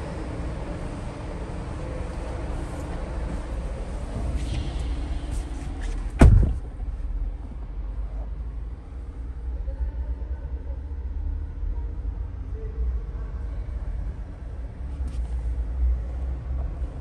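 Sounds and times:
low rumble inside car: 0.0 - 17.0
loud thump: 6.1 - 6.8.

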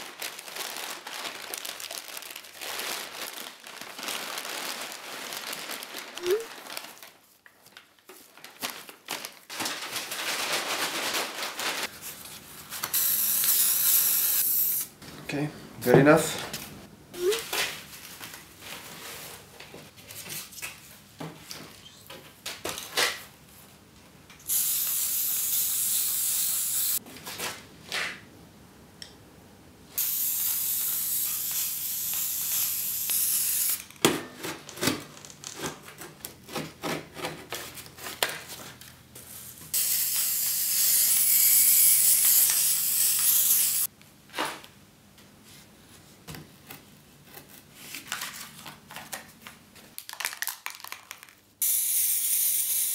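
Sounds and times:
spray paint can hissing: 12.9 - 14.9, 24.5 - 27.0, 30.0 - 33.8, 39.7 - 43.9, 51.6 - 52.9.

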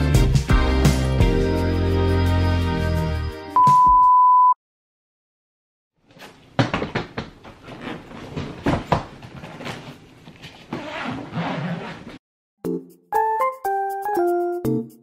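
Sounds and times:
zipper clicks: 10.7 - 12.2.

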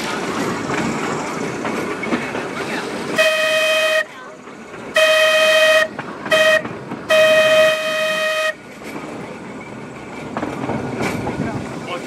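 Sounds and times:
tram rumbling along track: 0.0 - 12.0
tram horn blasts: 3.1 - 4.2, 4.9 - 8.7.

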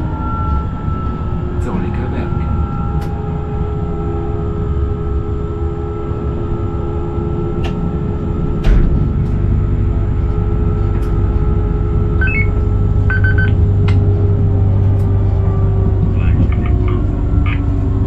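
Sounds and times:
electric train motor hum: 0.0 - 18.0
short electronic beeps: 12.2 - 13.6.

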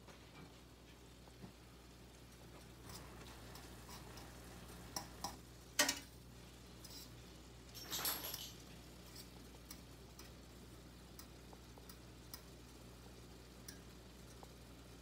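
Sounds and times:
fork scraping frying pan: 2.8 - 5.2, 6.8 - 7.2
fork clicking on pan: 2.9 - 6.1, 9.2 - 10.4.

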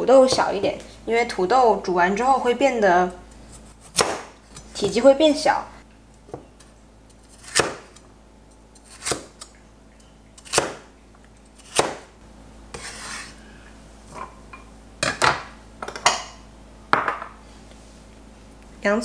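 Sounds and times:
cleaver chopping on wooden board: 3.9 - 4.3, 7.4 - 7.9, 10.5 - 10.9, 11.6 - 12.1
knife scraping cutting board: 6.6 - 8.0, 8.7 - 9.5, 12.7 - 13.5.

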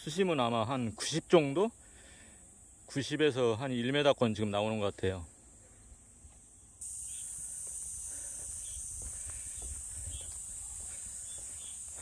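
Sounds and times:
cicadas droning: 0.0 - 12.0
faint footsteps on pavement: 6.2 - 12.0.

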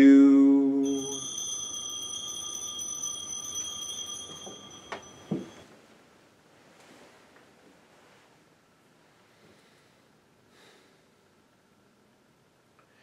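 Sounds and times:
bell ringing high tone: 0.8 - 5.7
light knocks: 4.3 - 5.6.

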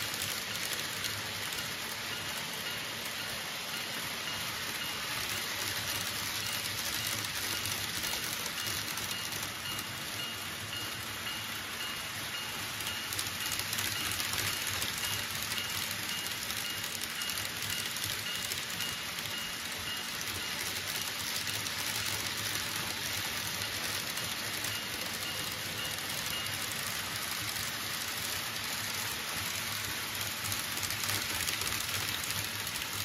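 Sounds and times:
model train wheels rolling on rail: 0.0 - 33.0.

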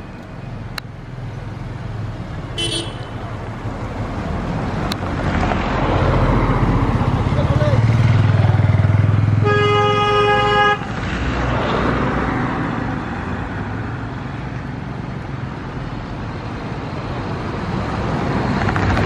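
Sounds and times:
road traffic: 0.0 - 19.0
vehicle horn: 2.6 - 3.3, 9.4 - 10.9
vehicle passing close: 3.3 - 9.5, 10.8 - 14.2, 16.8 - 19.0.

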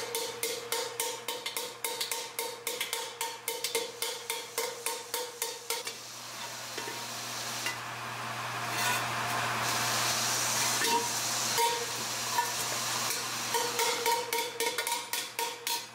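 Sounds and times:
hammer striking steel: 0.0 - 5.9, 10.8 - 12.5, 13.1 - 15.9
steady hiss: 3.5 - 7.6.

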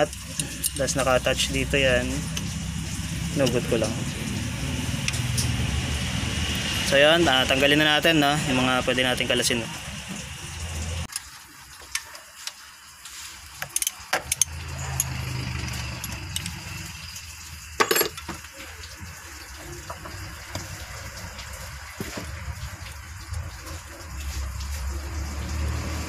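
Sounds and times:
metal hand tools clinking: 13.6 - 16.6
tools clattering: 17.8 - 18.4.

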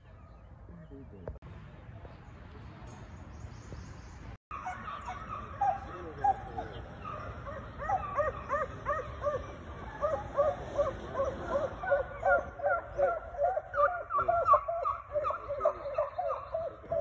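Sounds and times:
pack of hounds baying: 4.5 - 17.0.

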